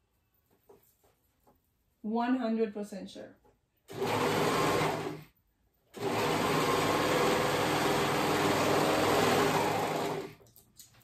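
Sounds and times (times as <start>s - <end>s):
overlock sewing machine running: 3.9s - 5.3s, 5.9s - 10.4s.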